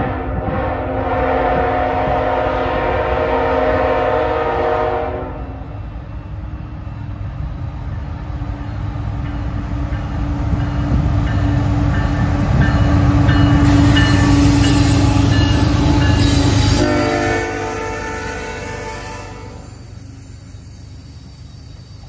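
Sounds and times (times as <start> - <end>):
diesel locomotives rumbling past: 0.0 - 22.0
train wheels squealing: 5.6 - 22.0.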